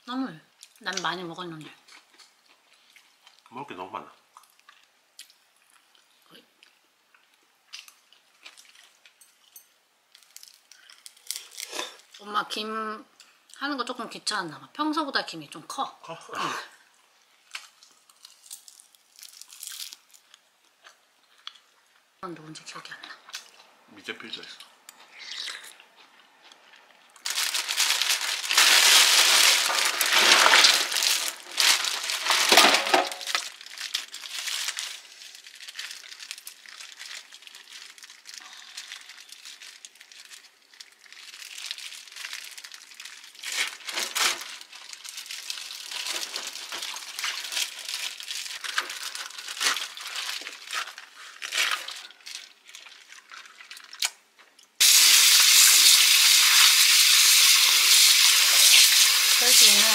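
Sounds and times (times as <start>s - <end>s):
plastic bag crinkling: 10.1s - 12.2s, 17.5s - 20.4s, 27.2s - 54.2s.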